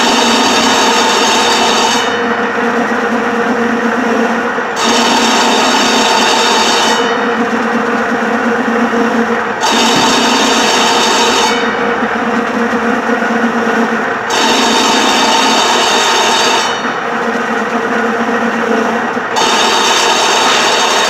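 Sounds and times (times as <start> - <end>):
cutting machine running: 0.0 - 21.0
high rotary knife cutting: 4.6 - 17.0.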